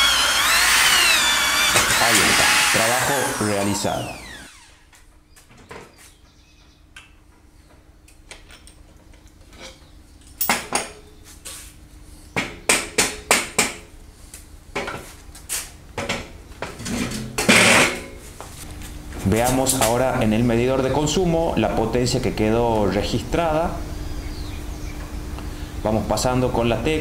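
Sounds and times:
faint steady hum: 20.0 - 27.0.

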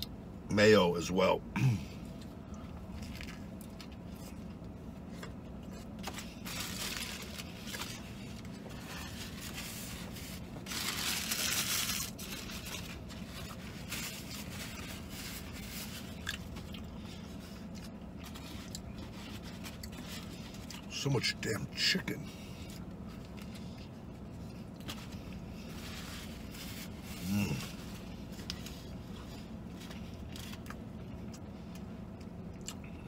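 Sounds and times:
person chewing food: 2.0 - 9.6, 12.5 - 20.9, 26.9 - 33.0
paper napkins crumpling: 6.0 - 16.4, 24.9 - 30.6.

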